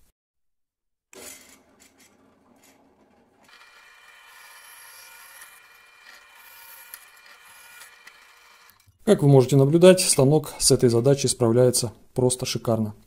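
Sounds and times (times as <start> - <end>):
drill press motor running: 2.8 - 8.9
drill bit cutting steel whine: 3.5 - 8.9.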